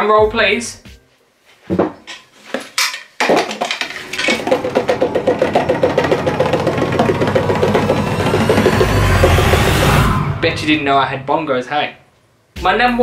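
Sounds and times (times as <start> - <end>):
bongo drum roll: 3.9 - 11.7.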